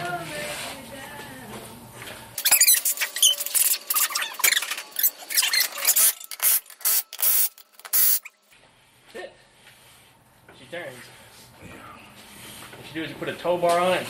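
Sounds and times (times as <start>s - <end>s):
impact wrench bursts: 2.4s - 8.3s.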